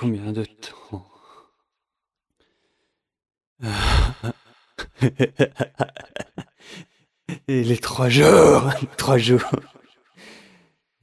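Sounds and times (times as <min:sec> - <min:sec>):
man panting: 0:03.6 - 0:04.8, 0:06.5 - 0:07.0, 0:10.2 - 0:10.7
man sighing heavily: 0:03.6 - 0:04.8.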